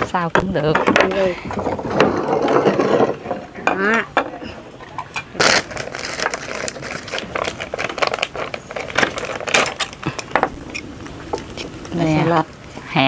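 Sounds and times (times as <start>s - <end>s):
tableware clattering: 0.6s - 5.3s.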